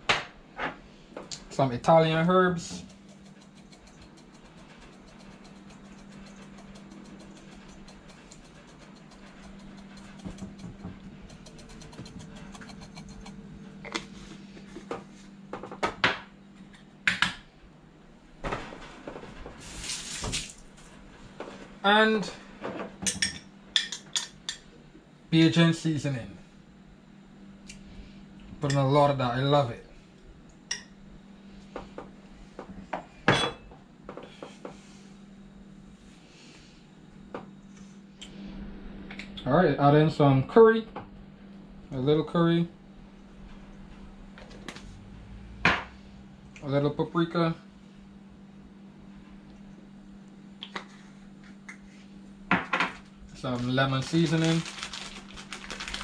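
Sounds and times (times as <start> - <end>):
low steady hum: 0.0 - 56.0
herbs shaken from a shaker: 2.0 - 13.4, 53.3 - 56.0.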